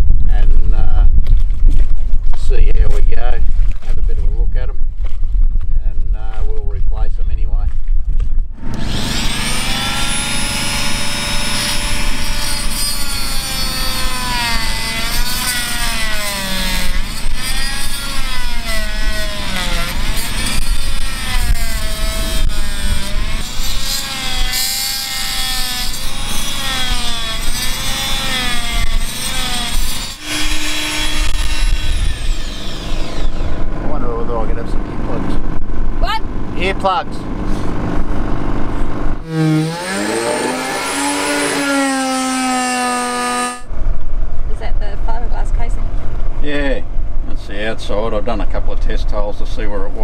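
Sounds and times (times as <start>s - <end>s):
oscillating multi-tool cutting: 8.6s - 33.7s, 39.2s - 43.7s.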